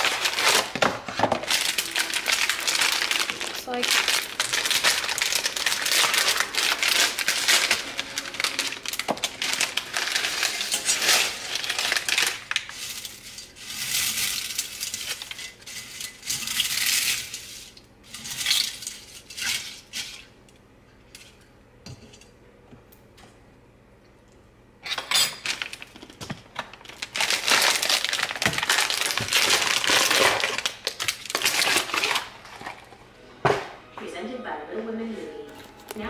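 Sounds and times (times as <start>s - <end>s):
plastic bag crinkling: 0.0s - 17.8s, 25.4s - 32.9s
dry pasta rattling into saucepan: 0.0s - 20.2s, 25.4s - 32.6s.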